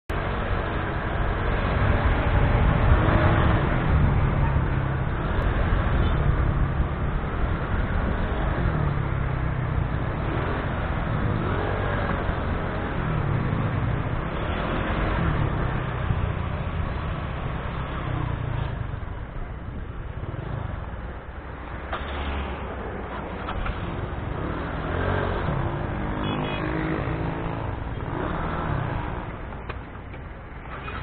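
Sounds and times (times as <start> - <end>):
road noise: 0.0 - 31.0.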